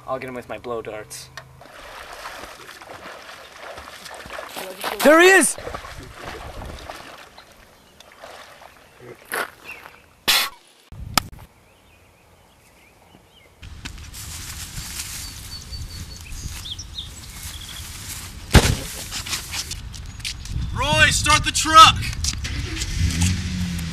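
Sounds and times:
short sharp noises: 10.2 - 10.7
loud thump: 18.5 - 19.0.

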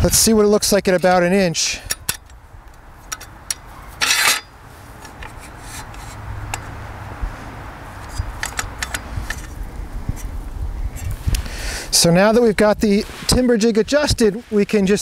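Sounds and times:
metal scraping rattle: 3.0 - 6.8, 7.9 - 10.4.

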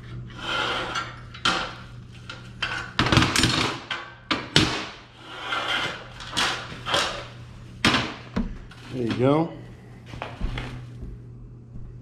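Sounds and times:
low steady hum: 0.0 - 12.0
steel scraping: 0.3 - 1.8, 5.2 - 7.3.

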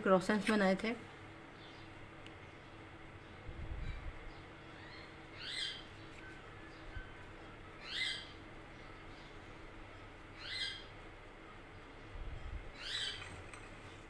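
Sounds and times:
faint steady hum: 0.0 - 14.0
bird calling: 3.8 - 10.9, 12.8 - 13.7.

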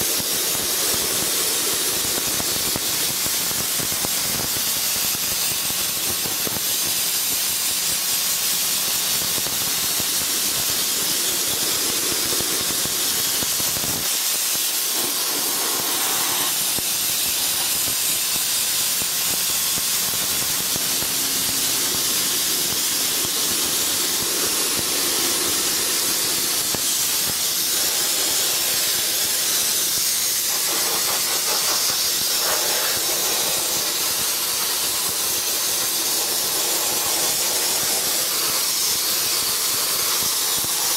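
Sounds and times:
soda blaster hissing on wood: 0.0 - 40.9.

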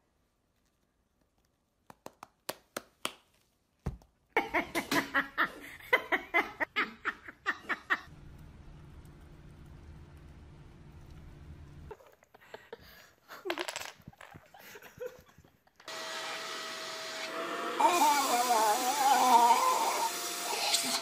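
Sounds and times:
person laughing: 4.4 - 8.1, 12.3 - 15.9.

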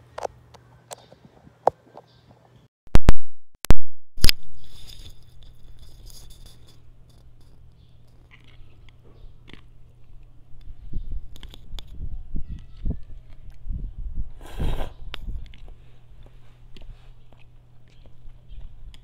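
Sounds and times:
low steady hum: 4.2 - 19.0.

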